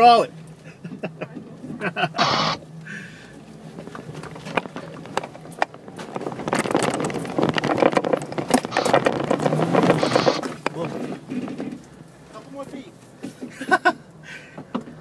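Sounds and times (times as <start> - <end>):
engine running under load: 0.0 - 15.0
tyres crunching over rock and dirt: 3.7 - 11.9.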